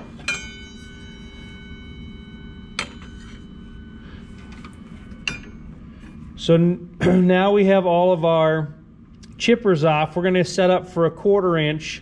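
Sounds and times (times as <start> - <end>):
metallic ringing tone: 0.0 - 6.3.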